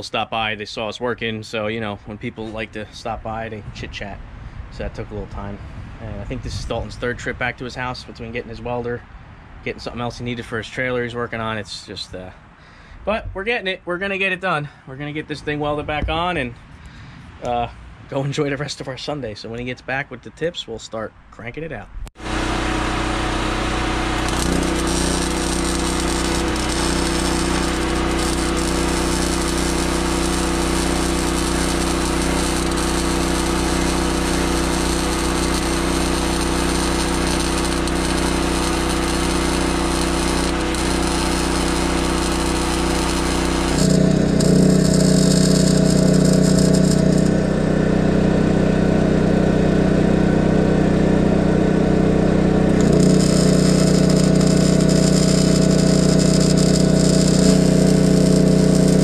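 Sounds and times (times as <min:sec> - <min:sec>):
welding arc crackling: 0:22.2 - 0:49.8, 0:50.9 - 0:59.0
generator engine hum: 0:22.2 - 0:59.0.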